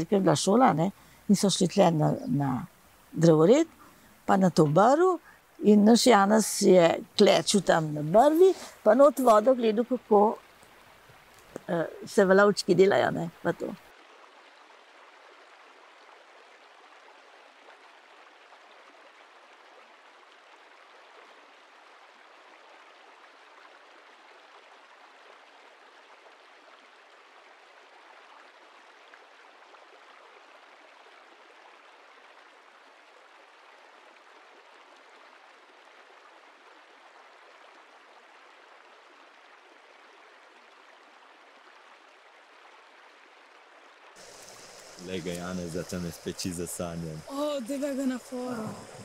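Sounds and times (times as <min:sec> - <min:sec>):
river water rushing: 0:06.2 - 0:13.8, 0:44.2 - 0:49.0.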